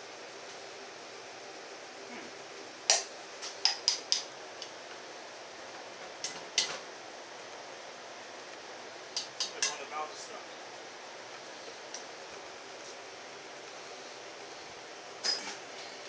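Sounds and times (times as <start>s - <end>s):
metallic clinks of tools: 15.2s - 15.6s.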